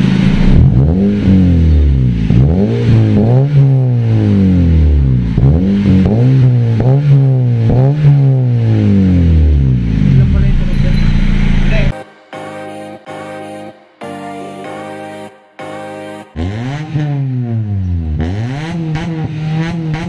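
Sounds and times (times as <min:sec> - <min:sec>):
car engine revving through exhaust: 0:00.0 - 0:11.9, 0:16.4 - 0:20.0.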